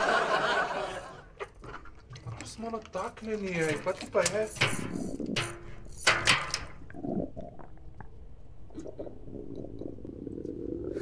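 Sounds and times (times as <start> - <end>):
muffled gurgling rumble: 6.7 - 11.0.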